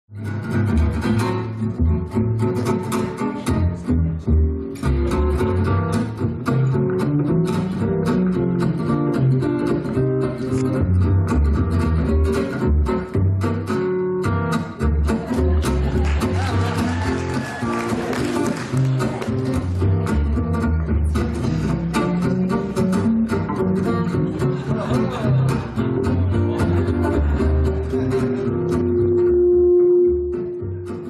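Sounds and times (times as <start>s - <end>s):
fast plucked string notes: 0.1s - 31.0s
deep bass notes: 19.3s - 31.0s.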